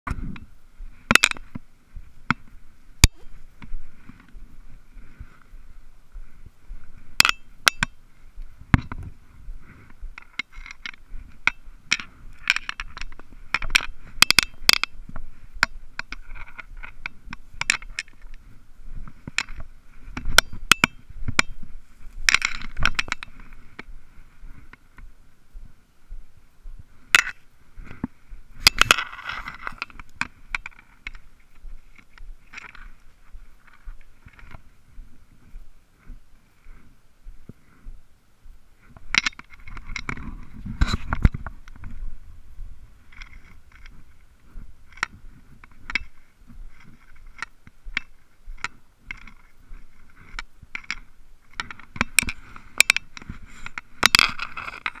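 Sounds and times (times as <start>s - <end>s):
faint high hiss: 0.1s - 54.0s
camera housing clicks and scrapes: 9.8s - 18.5s, 22.2s - 23.9s, 27.2s - 31.2s, 38.9s - 42.0s, 43.1s - 44.0s, 44.9s - 55.0s.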